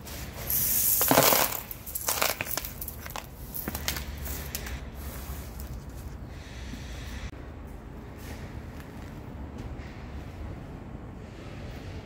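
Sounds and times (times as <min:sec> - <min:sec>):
hand brush sweeping metal debris: 0:00.0 - 0:03.2, 0:04.2 - 0:06.2
metal pieces clattering into bucket: 0:00.8 - 0:03.7.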